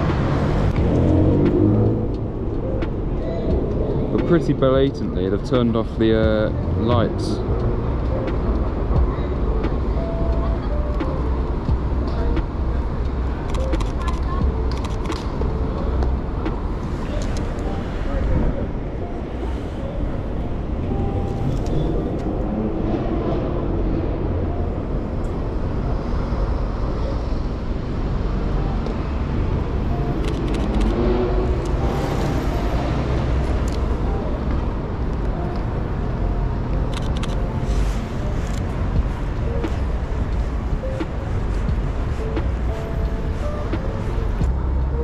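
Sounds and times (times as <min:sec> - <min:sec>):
low rumble of road traffic: 0:00.0 - 0:45.0
scattered clicks: 0:13.4 - 0:15.5, 0:30.2 - 0:31.0, 0:36.7 - 0:37.5.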